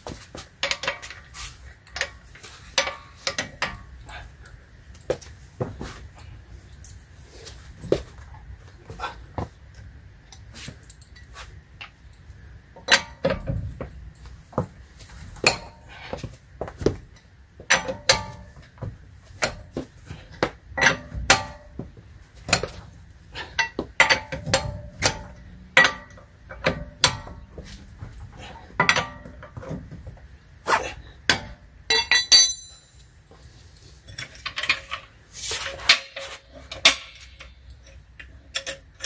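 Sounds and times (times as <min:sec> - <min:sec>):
socket wrench clinking on lug nuts: 0:31.4 - 0:33.0.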